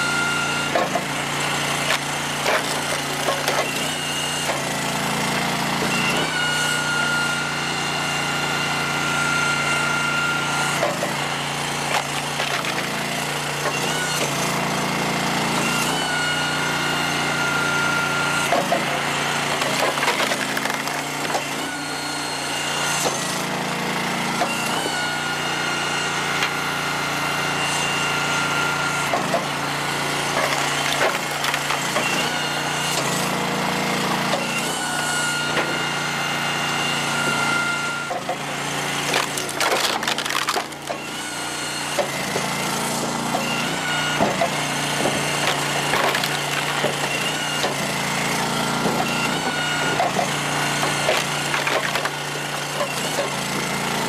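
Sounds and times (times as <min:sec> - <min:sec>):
hydraulic log splitter running: 0:00.0 - 0:54.0
wood cracking and splintering: 0:01.8 - 0:04.7, 0:11.8 - 0:14.3, 0:18.5 - 0:21.7, 0:30.3 - 0:32.4, 0:39.0 - 0:41.3, 0:44.2 - 0:47.8, 0:49.0 - 0:53.6.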